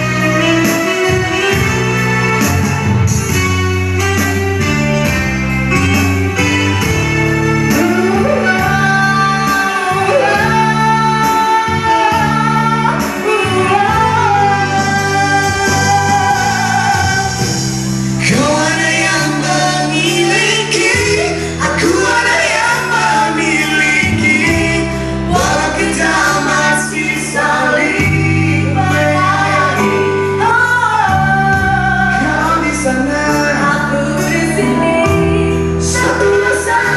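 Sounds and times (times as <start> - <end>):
instrumental accompaniment: 0.0 - 36.9
woman and man singing pop ballad: 7.6 - 36.9.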